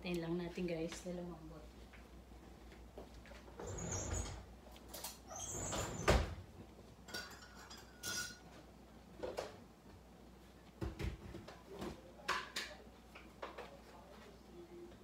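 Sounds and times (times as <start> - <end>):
cookware clinking and knocking: 7.1 - 8.4.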